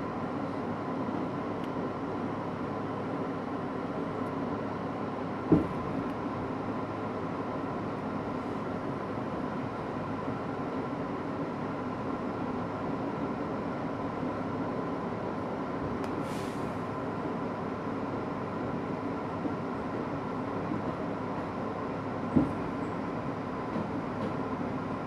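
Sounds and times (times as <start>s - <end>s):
train wheels rumbling on rail: 0.1s - 25.0s
brief hiss: 16.2s - 16.8s.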